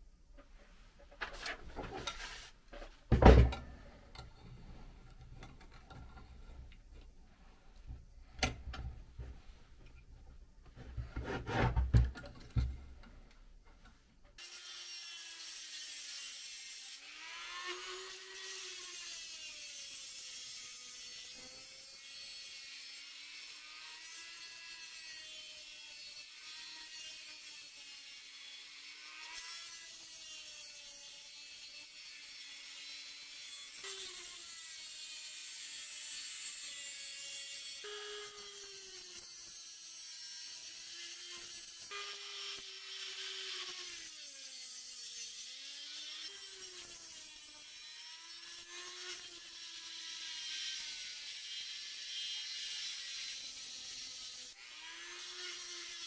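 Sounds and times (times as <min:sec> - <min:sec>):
rotary tool grinding steel: 0:14.4 - 0:56.0.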